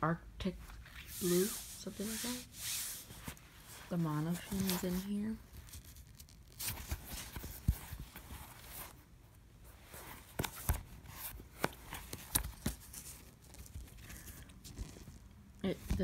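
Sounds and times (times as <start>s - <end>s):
fabric rustling: 0.6s - 16.0s.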